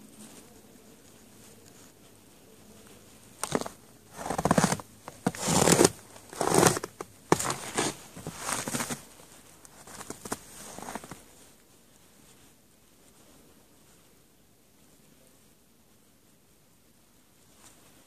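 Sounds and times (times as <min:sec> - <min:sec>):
loud rustling and scraping: 0:03.4 - 0:11.2.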